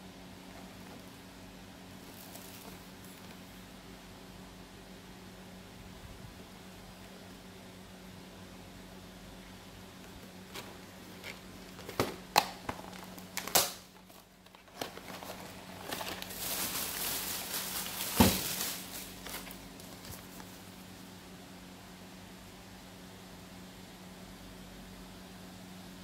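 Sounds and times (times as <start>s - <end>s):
paper sachets rustling: 2.0s - 3.4s, 10.5s - 20.8s
cardboard flaps clicking and snapping: 11.2s - 16.2s.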